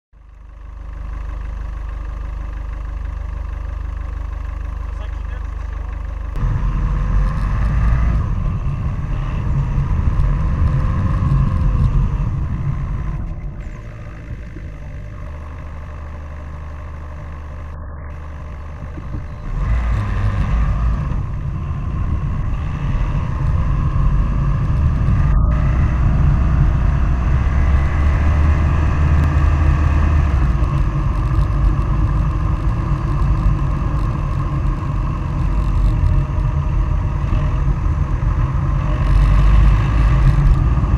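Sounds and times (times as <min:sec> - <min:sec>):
low road rumble: 0:00.1 - 0:40.9
wind buffeting microphone: 0:06.4 - 0:16.0, 0:18.6 - 0:40.9.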